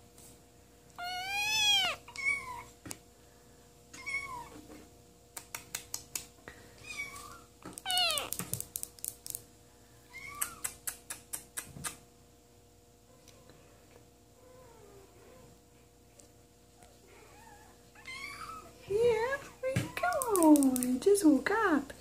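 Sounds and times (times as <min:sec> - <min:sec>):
kitten meowing: 0:01.0 - 0:02.7, 0:06.8 - 0:08.5.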